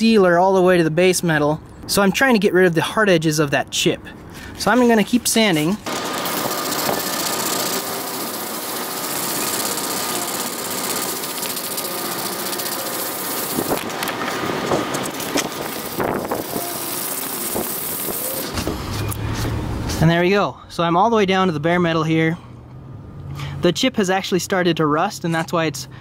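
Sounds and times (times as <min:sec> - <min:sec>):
sandpaper rasping on car panel: 0:06.3 - 0:18.6.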